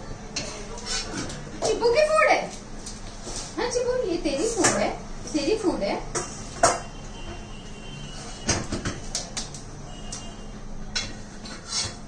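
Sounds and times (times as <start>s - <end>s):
kitchenware knocks and clicks: 8.5s - 9.1s.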